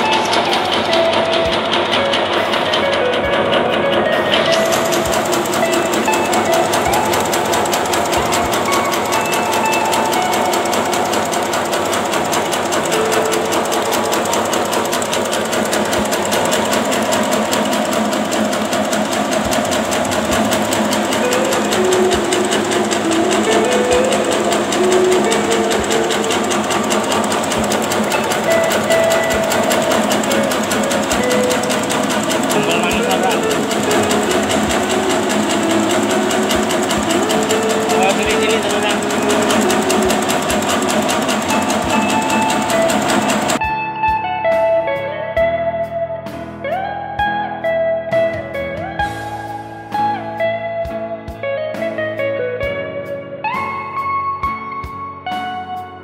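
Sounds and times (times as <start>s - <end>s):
machine mechanical clatter: 0.0s - 43.6s
music: 0.0s - 56.0s.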